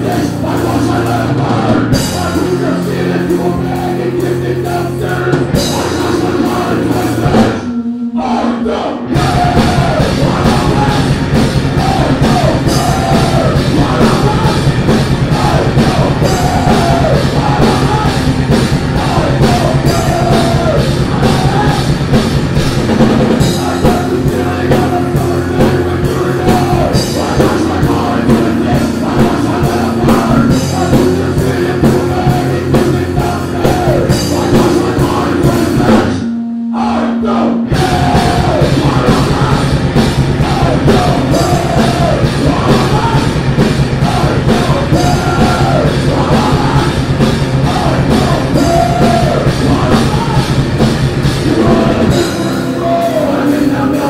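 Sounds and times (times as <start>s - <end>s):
person shouting singing: 0.0s - 22.1s, 23.4s - 50.6s, 51.4s - 54.0s
heavy metal band playing: 0.0s - 54.0s.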